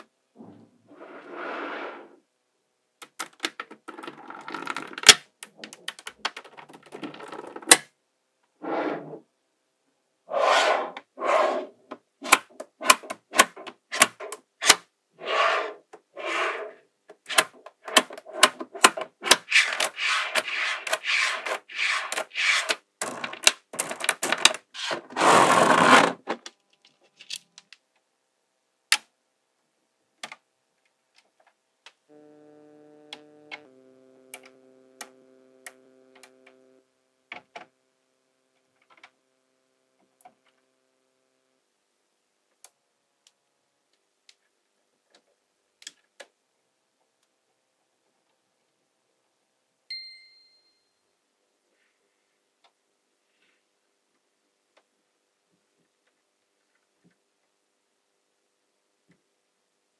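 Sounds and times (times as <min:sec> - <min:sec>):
magnetic balls rattling and scraping: 0:03.6 - 0:07.7, 0:15.2 - 0:26.2.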